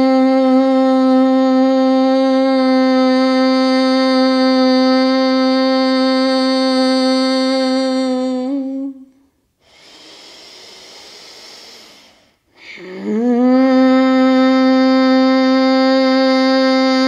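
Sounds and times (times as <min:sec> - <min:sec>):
woman humming: 0:00.0 - 0:09.2, 0:12.6 - 0:17.0
breath drawn in through nose: 0:09.6 - 0:12.8.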